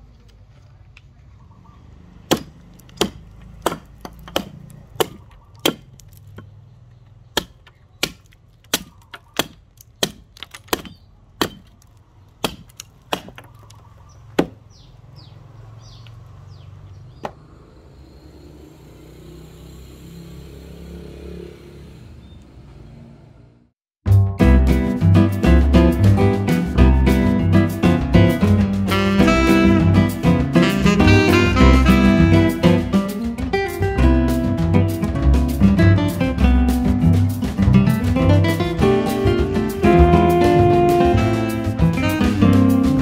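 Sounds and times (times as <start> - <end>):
hatchet chopping wood: 2.2 - 14.7.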